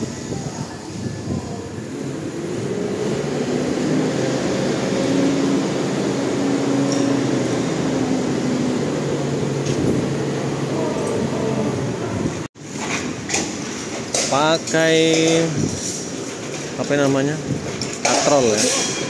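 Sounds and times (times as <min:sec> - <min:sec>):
truck diesel engine driving past: 0:02.2 - 0:12.5.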